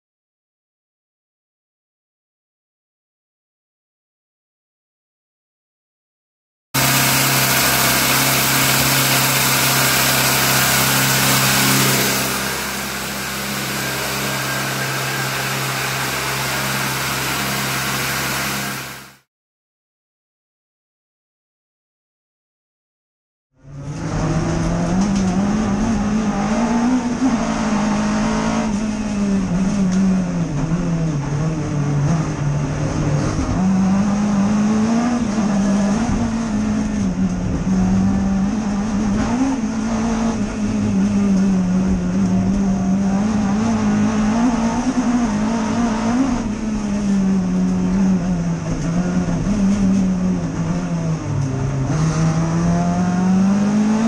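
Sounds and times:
race car engine revving: 6.8s - 19.2s, 23.6s - 54.0s.

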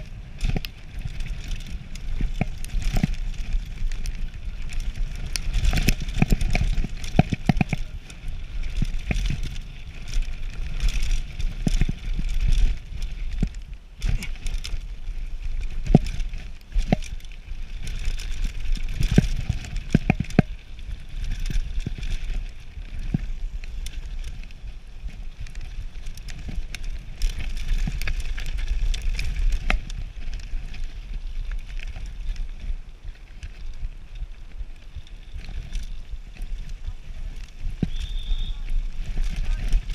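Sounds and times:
bike knocking and rattling: 0.0s - 39.9s
bike tyres rolling over dirt: 0.0s - 39.9s
wind buffeting microphone: 33.7s - 39.9s.

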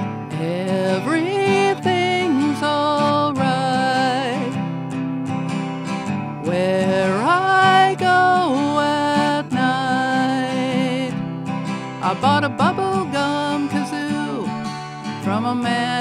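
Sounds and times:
acoustic guitar strumming: 0.0s - 16.0s
woman's wordless singing: 0.3s - 4.7s, 6.4s - 11.3s, 12.0s - 16.0s.

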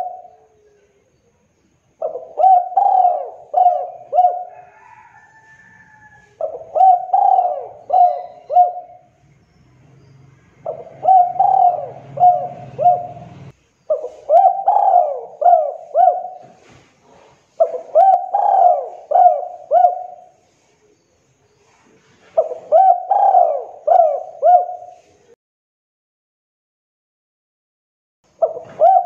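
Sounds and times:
dove cooing: 0.0s - 0.9s, 2.0s - 5.1s, 6.4s - 9.2s, 10.6s - 16.7s, 17.5s - 20.4s, 22.2s - 25.3s, 28.4s - 29.0s.

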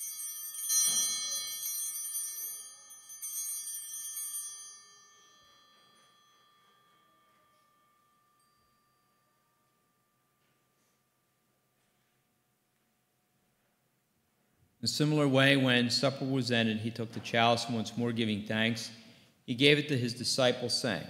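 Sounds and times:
small altar bells ringing: 0.0s - 12.4s.

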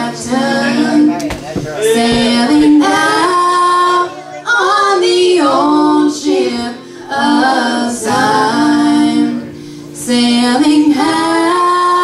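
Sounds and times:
women singing gospel: 0.0s - 12.0s
singers breathing: 9.5s - 10.0s.

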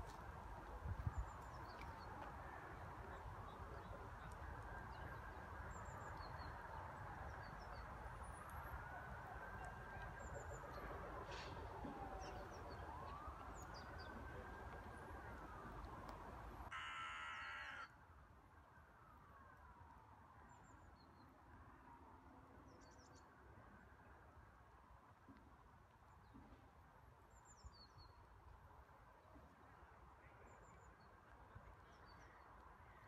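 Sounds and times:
distant siren wailing: 2.0s - 18.0s.

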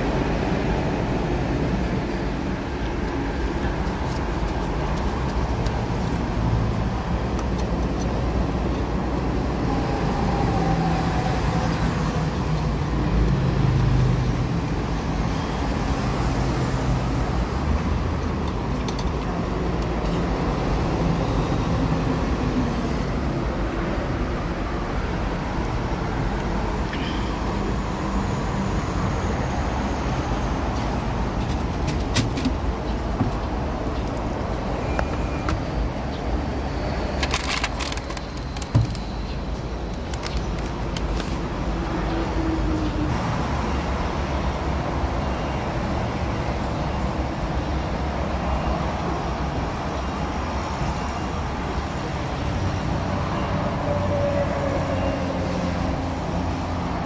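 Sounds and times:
road traffic: 0.0s - 57.0s.

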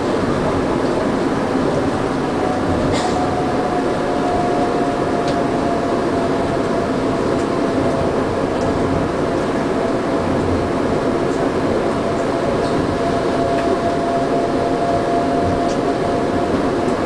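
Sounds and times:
faint motor whine: 0.0s - 17.0s
rumble and hiss of tyres on track: 0.0s - 17.0s.

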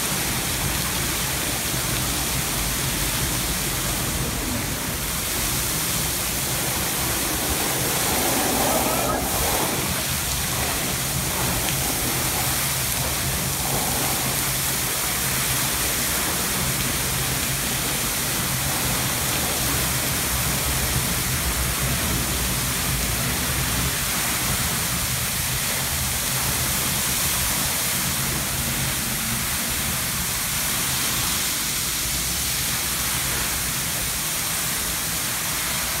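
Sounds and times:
spray falling on pavement: 0.0s - 36.0s
water jet rushing: 0.0s - 36.0s.

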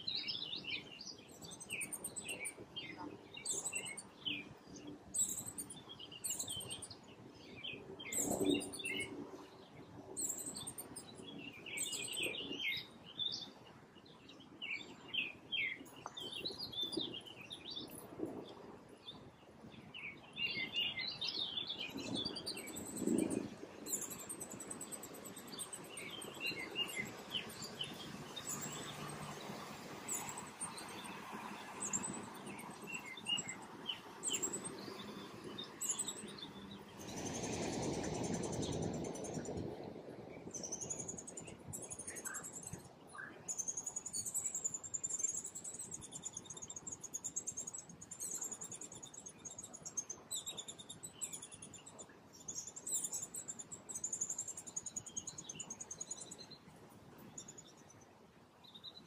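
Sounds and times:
songbirds chirping: 0.0s - 59.0s
background hiss: 14.0s - 58.8s.

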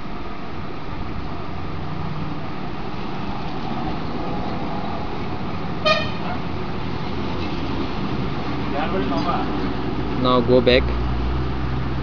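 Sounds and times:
background traffic: 0.0s - 12.0s
vehicle horn toot: 5.8s - 6.4s.

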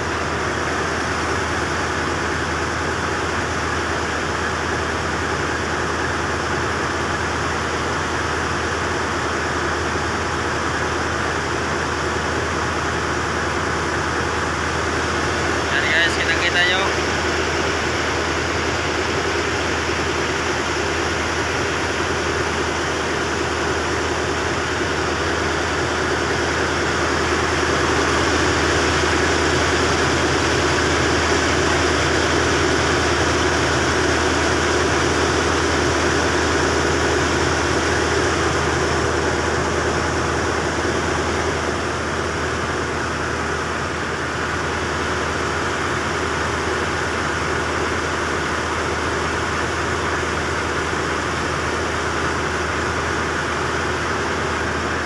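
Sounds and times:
small boat engine droning: 0.0s - 55.0s.

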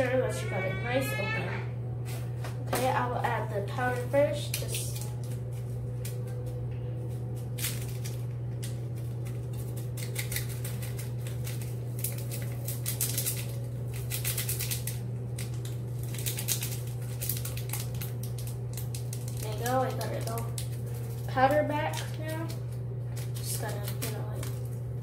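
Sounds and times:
steady low hum: 0.0s - 25.0s
packaging crinkling and clicking: 3.9s - 24.9s.

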